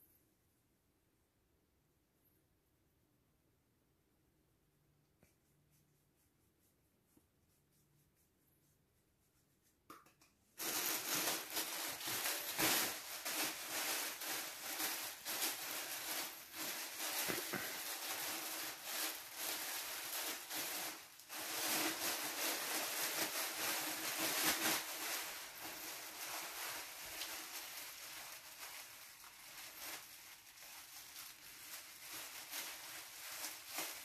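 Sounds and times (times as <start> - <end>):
plastic gown crinkling: 10.6 - 34.0.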